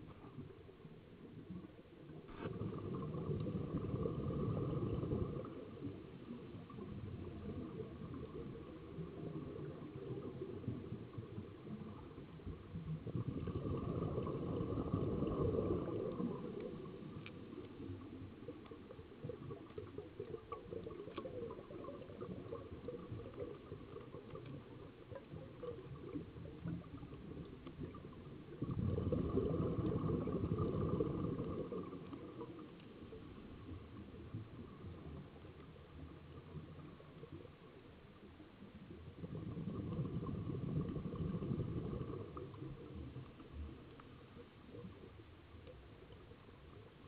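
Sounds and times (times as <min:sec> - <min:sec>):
underwater breath bubbling: 0:02.3 - 0:17.8, 0:19.4 - 0:32.8, 0:39.1 - 0:43.0.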